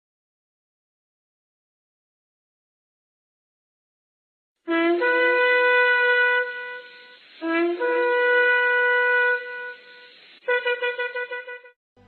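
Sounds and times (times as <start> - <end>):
ram's horn blasts: 4.7 - 11.8.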